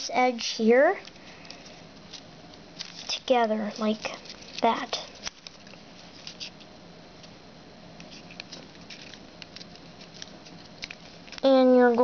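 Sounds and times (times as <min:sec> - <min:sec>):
foil paper crinkling: 0:02.8 - 0:06.6, 0:08.0 - 0:12.0.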